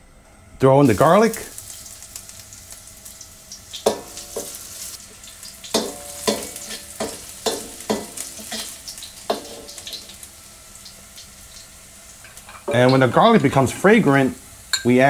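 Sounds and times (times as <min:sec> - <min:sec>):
garlic sizzling in oil: 0:00.8 - 0:15.0
metal ladle scraping wok: 0:05.7 - 0:10.0.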